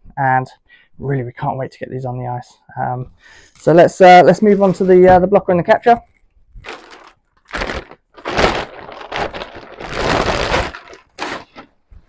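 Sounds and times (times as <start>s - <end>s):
plastic bag crinkling: 6.6s - 12.0s.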